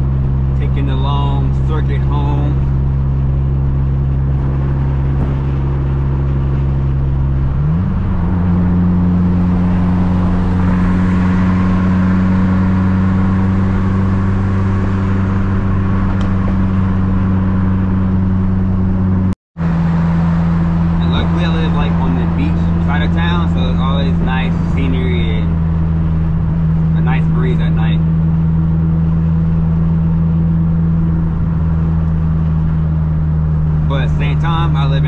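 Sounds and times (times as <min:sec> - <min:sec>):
car engine droning in cabin: 0:00.0 - 0:35.0.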